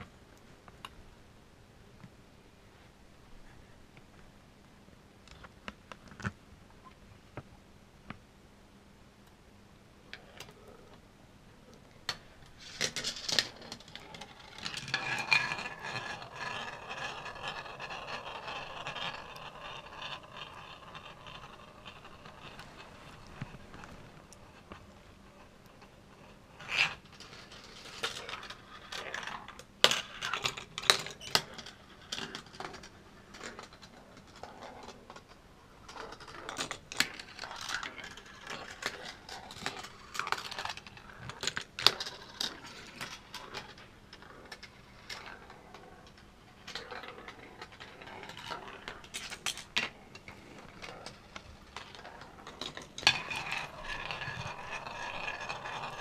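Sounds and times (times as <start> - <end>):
marbles rolling through marble run: 12.1 - 23.9, 25.7 - 56.0.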